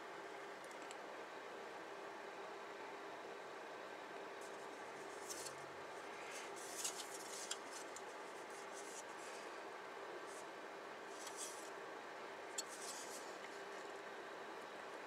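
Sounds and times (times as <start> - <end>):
low hiss and hum: 0.0 - 15.0
plastic sprues rustling and scraping: 4.4 - 5.6, 6.2 - 9.4, 11.1 - 11.7, 12.6 - 13.4.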